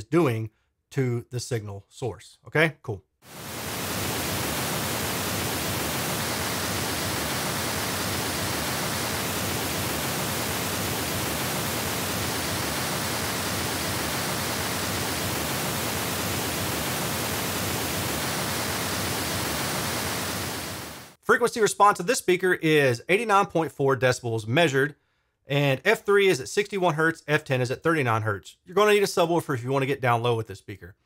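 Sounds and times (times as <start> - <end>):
steady pink noise: 3.3 - 21.2.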